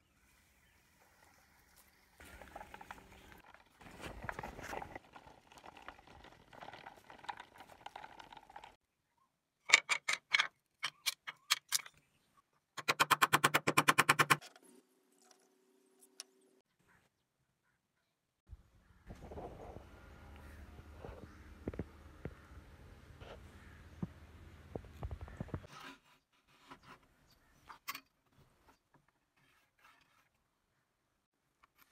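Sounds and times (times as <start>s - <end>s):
faint steady hum: 18.5s - 25.6s.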